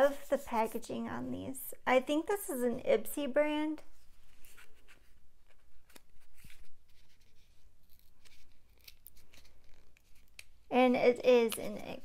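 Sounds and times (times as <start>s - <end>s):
scratchy rustles: 4.0s - 10.3s.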